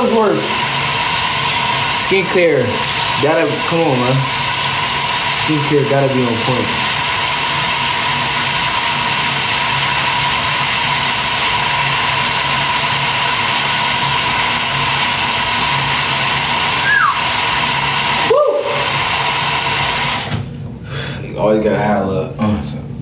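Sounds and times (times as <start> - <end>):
tap water running into sink: 0.0 - 18.1.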